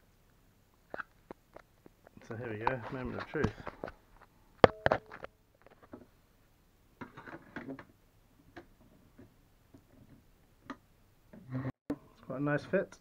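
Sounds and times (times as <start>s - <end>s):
handling rustles: 2.2s - 6.1s.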